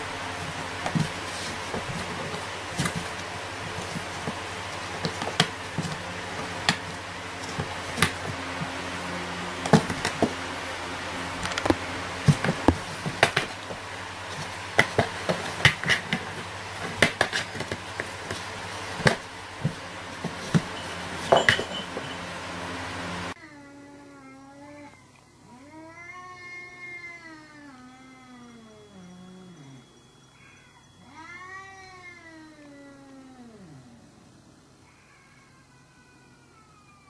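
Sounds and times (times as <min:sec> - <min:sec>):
cat pawing in cardboard box: 0:00.0 - 0:10.5, 0:11.4 - 0:22.2
steady low hum: 0:00.0 - 0:23.4.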